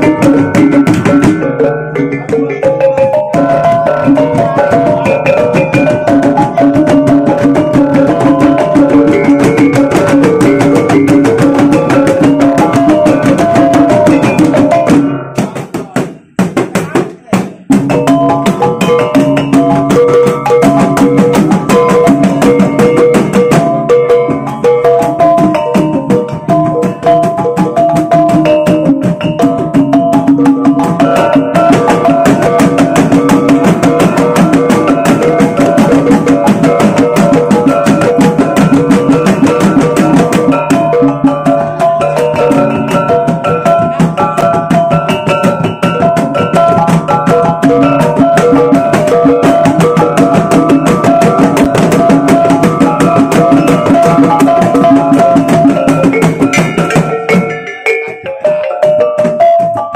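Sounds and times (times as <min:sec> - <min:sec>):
rapid drumming: 0:00.0 - 0:59.9.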